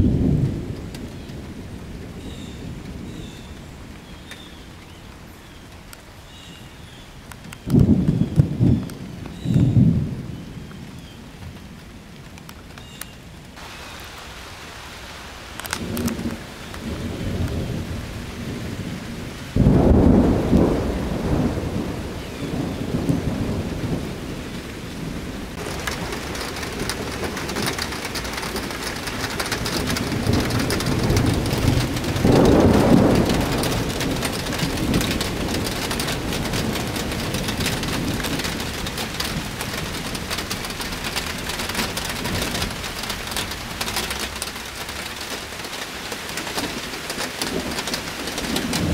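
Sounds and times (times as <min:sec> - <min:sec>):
thunder rumbling: 0:00.0 - 0:05.2, 0:07.6 - 0:12.4, 0:13.5 - 0:48.9
rain falling: 0:00.0 - 0:48.9.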